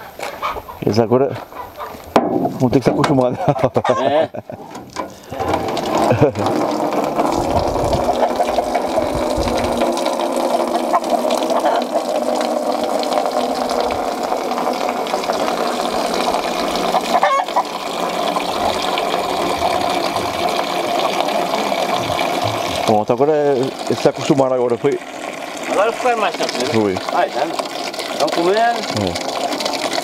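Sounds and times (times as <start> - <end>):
chickens clucking: 0.0 - 2.0, 3.4 - 5.4, 8.0 - 8.9, 10.6 - 12.2, 16.8 - 20.3.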